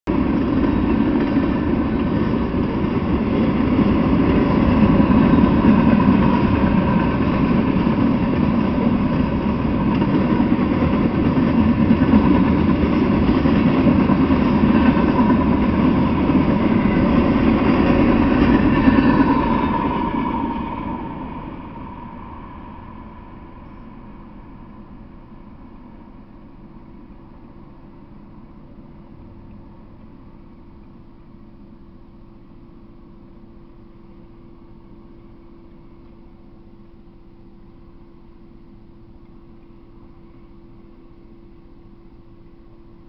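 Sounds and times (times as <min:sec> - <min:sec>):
freight train rolling past: 0:00.1 - 0:31.2.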